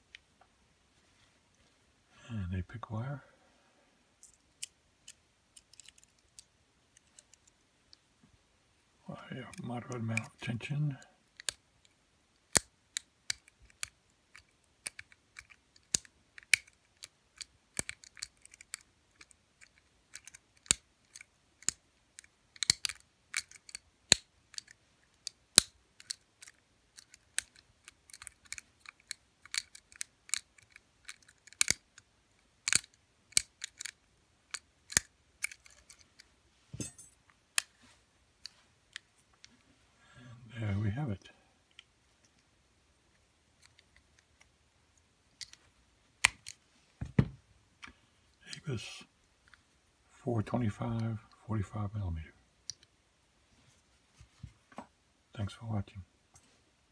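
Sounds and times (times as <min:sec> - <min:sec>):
metallic clicks of lock picking: 0:04.2 - 0:07.6, 0:11.4 - 0:11.6, 0:12.4 - 0:36.2.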